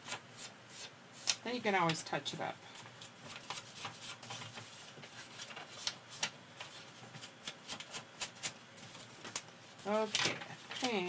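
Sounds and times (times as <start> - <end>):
paper rustling: 2.8 - 11.0.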